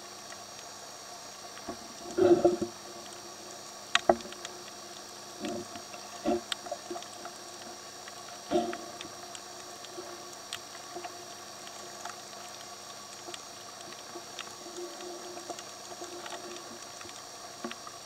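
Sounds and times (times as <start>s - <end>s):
faint underwater hiss: 0.0s - 18.0s
bubbling exhaled air: 2.1s - 2.8s, 8.4s - 9.0s.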